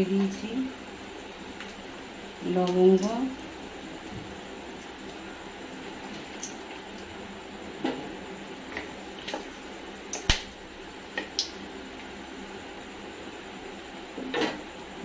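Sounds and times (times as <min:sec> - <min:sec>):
sharp pops: 0:10.1 - 0:10.6.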